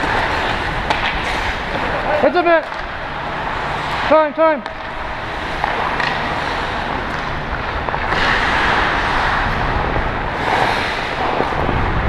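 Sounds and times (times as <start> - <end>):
ice skate blades scraping: 0.0 - 11.9
wind on microphone: 7.4 - 12.0.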